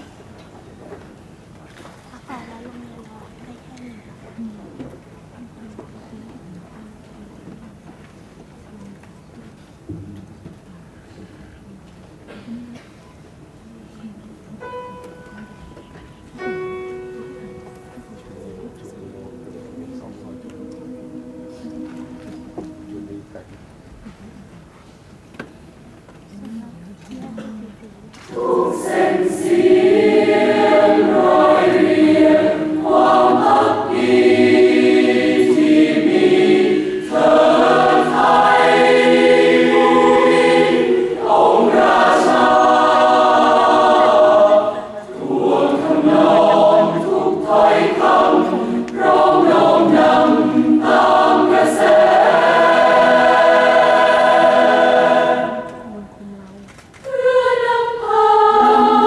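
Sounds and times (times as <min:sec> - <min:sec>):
choir singing in harmony: 0:16.4 - 0:23.5, 0:28.2 - 0:56.2, 0:57.0 - 0:59.0.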